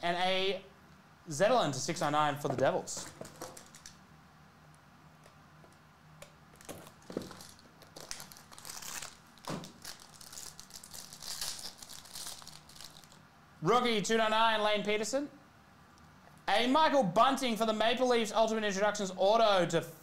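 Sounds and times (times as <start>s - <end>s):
foil pack crinkling and tearing: 6.6s - 13.2s.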